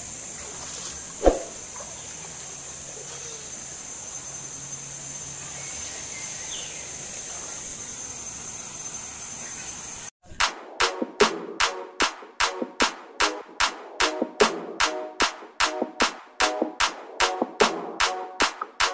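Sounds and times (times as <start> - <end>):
high insect drone: 0.0 - 10.1.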